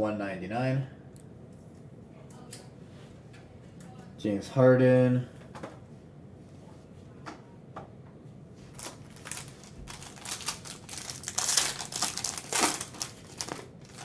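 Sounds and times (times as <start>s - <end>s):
plastic sleeve crinkling: 8.6s - 14.0s.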